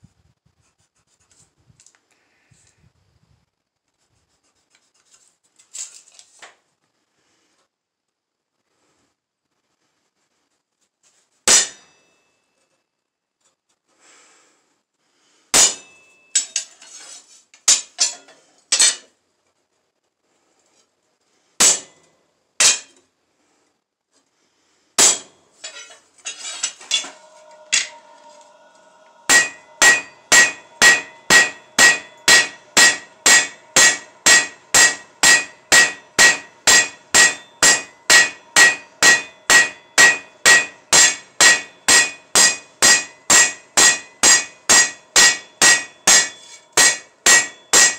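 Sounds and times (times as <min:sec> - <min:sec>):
metal clangs: 0:15.6 - 0:16.9, 0:22.6 - 0:23.0, 0:25.0 - 0:47.9
hammer blows on anvil ringing: 0:26.8 - 0:47.9.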